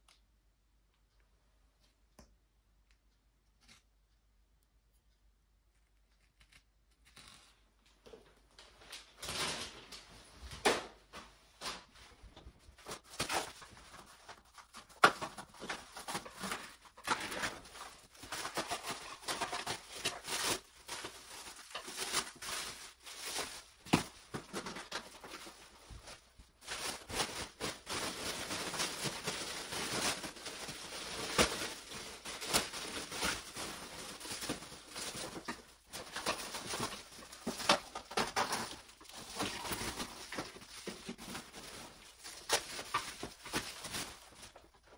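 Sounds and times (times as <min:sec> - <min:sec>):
plastic wrapping crinkling: 0:11.5 - 0:44.9.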